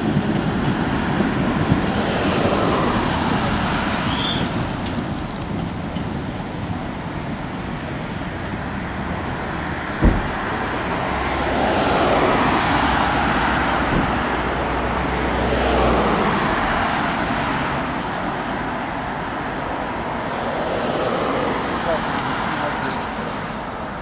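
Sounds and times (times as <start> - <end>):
cars passing: 0.0 - 24.0
sharp low thump: 10.0 - 10.6.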